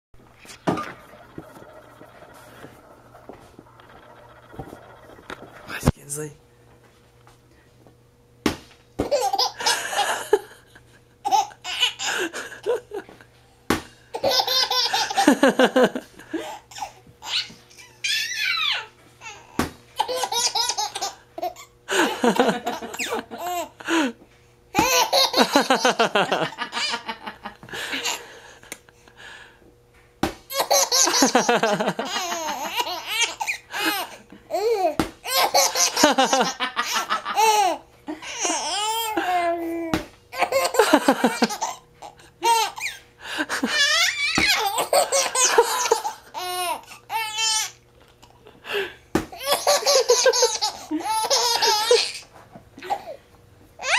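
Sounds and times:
baby laughing: 9.0s - 10.2s, 11.2s - 12.8s, 14.2s - 23.8s, 24.8s - 27.2s, 30.5s - 39.5s, 40.3s - 47.8s, 49.4s - 52.2s.

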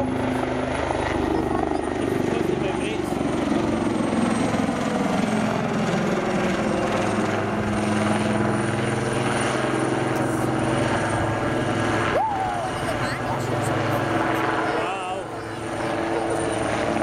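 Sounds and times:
helicopter rotor blades chopping: 0.0s - 17.0s
turbine engines whining: 0.0s - 17.0s.

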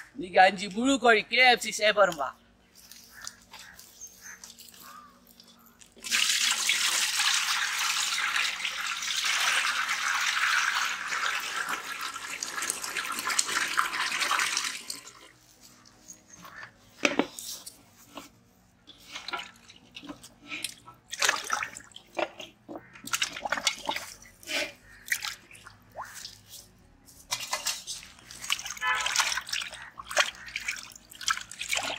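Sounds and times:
water pouring into metal pot: 6.0s - 15.3s, 27.4s - 31.9s
water splashing: 21.1s - 26.5s, 27.3s - 31.9s.

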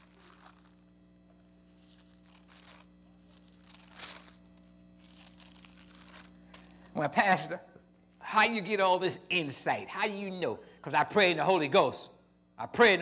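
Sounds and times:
thin pages being turned: 0.0s - 7.0s
faint low hum: 0.0s - 13.0s.

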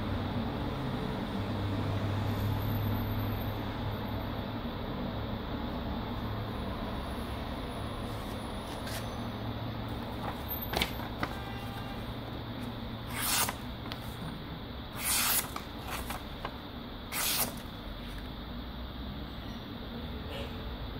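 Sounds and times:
knife slicing through paper: 13.0s - 14.3s, 15.0s - 16.5s, 17.1s - 17.7s.

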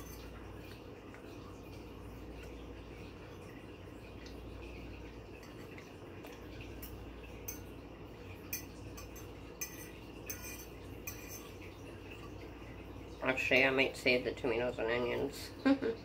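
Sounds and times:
metal fork scraping a plate: 0.0s - 0.4s, 8.5s - 11.7s.

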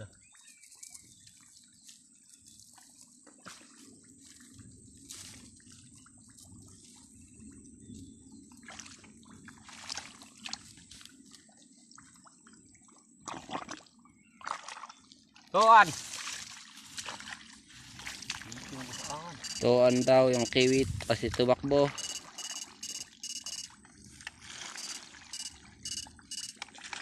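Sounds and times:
water drips and splashes: 0.0s - 22.4s, 23.7s - 27.0s
hands squelching in wet mud: 8.6s - 11.3s, 15.8s - 19.4s.

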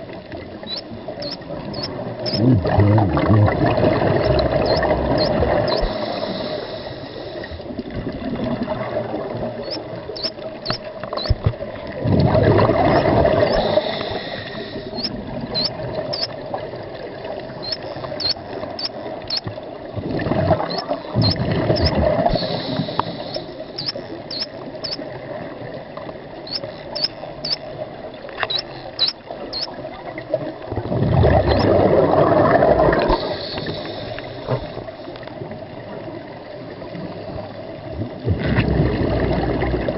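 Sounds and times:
scuba bubbles rushing: 0.4s - 19.2s, 19.8s - 25.5s, 29.6s - 34.7s, 38.0s - 39.9s
short high rising chirps: 0.7s - 2.4s, 9.6s - 11.4s, 14.9s - 16.3s, 17.6s - 19.4s, 23.2s - 25.0s, 28.5s - 29.7s
underwater hiss: 3.6s - 7.8s, 12.4s - 16.4s, 20.2s - 25.0s, 31.3s - 35.3s.

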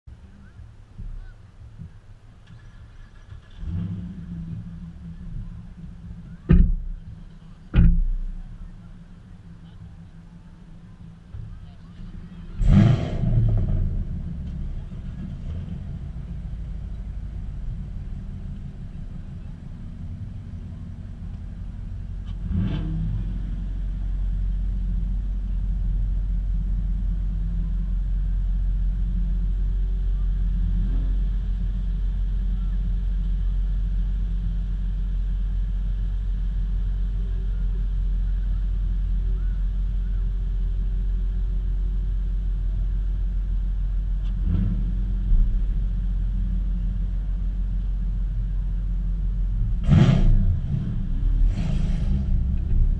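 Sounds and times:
car engines idling: 0.0s - 52.9s
engine revving: 3.2s - 8.0s, 11.8s - 17.2s, 22.0s - 25.2s, 44.2s - 47.2s, 49.5s - 52.9s.

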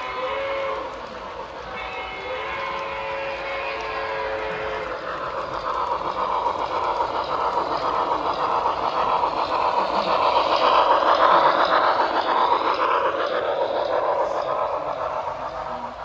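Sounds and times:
model train running on track: 0.0s - 16.0s.

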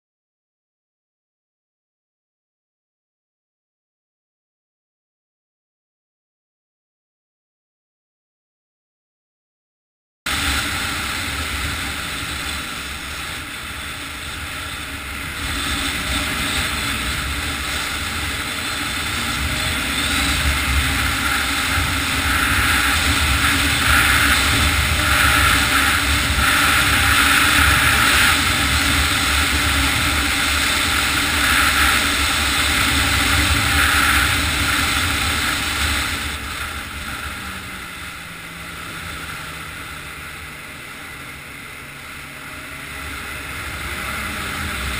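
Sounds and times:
snowmobile engine running: 10.3s - 44.9s.

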